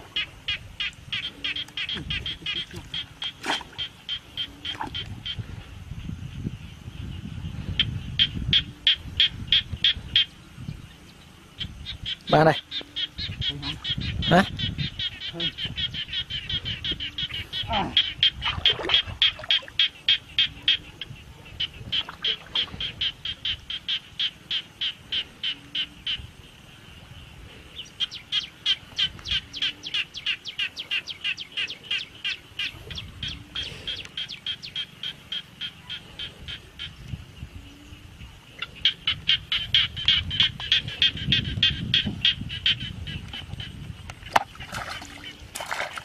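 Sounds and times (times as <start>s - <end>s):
frog calling in rapid pulses: 0.1s - 5.4s, 11.6s - 26.3s, 28.0s - 37.0s, 38.6s - 46.0s.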